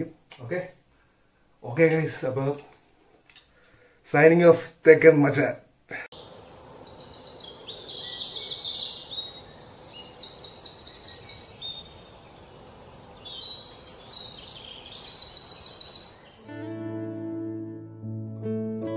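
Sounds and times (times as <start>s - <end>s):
songbirds chirping: 0.0s - 16.7s.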